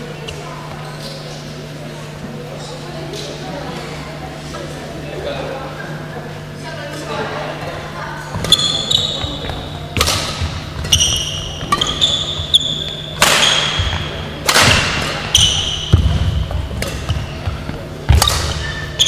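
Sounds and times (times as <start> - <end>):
shoes squeaking on wooden floor: 8.3 - 9.9, 10.7 - 14.1
racket hitting shuttlecock: 8.3 - 19.0.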